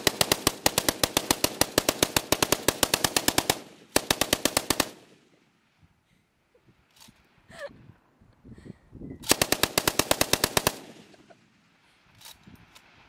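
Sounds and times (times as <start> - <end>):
machine gun firing bursts: 0.0 - 5.2, 9.3 - 11.3.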